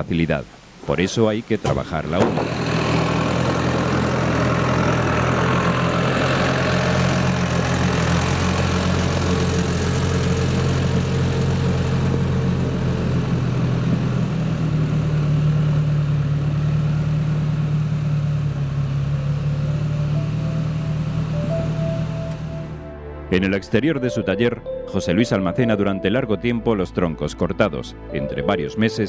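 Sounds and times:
off-road vehicle engine running: 0:01.7 - 0:22.8.

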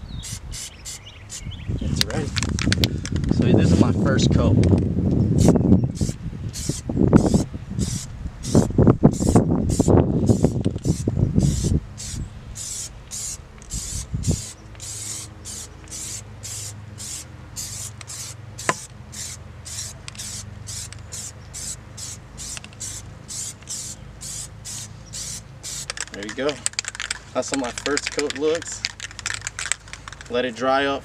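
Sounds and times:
aerosol spray hisses: 0:05.4 - 0:25.9.

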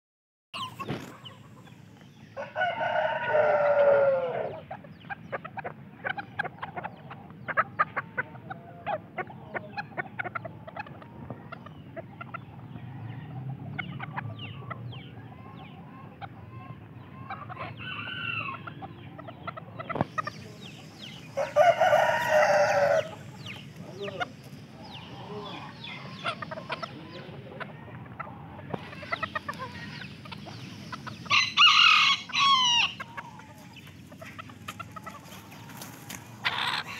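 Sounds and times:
rooster crowing: 0:02.4 - 0:04.6, 0:21.4 - 0:23.2, 0:31.2 - 0:33.5.

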